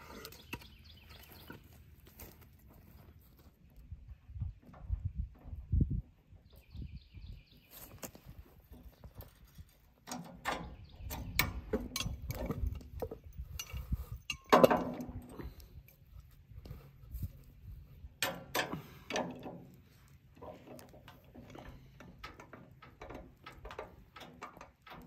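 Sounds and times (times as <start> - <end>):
steel jack clinking on wood: 11.2 - 15.4.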